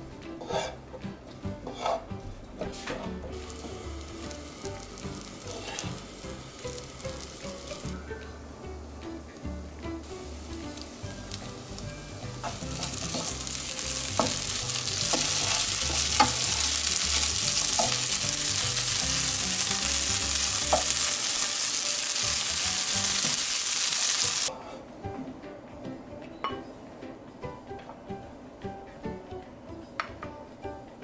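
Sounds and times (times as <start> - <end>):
fried rice sizzling in a pan: 3.4 - 7.9, 10.1 - 24.5.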